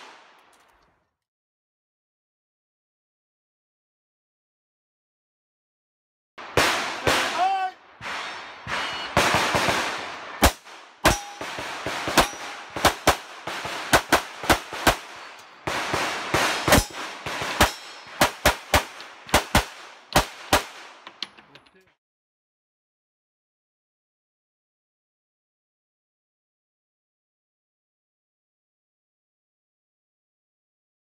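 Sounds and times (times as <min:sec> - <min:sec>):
pistol shots: 0:06.4 - 0:21.1
metallic ring of steel targets: 0:11.0 - 0:12.7, 0:16.6 - 0:18.2.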